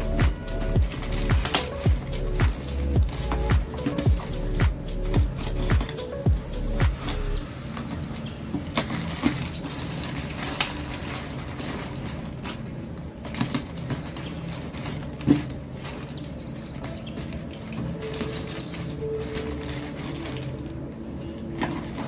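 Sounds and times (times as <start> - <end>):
plastic bag crinkling: 0.0 - 22.0
sharp plastic crackles: 0.0 - 22.0.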